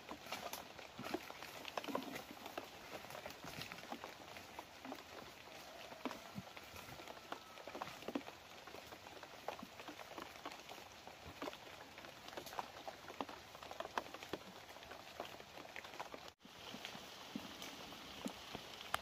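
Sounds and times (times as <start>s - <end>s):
faint pattering in undergrowth: 0.0s - 19.0s.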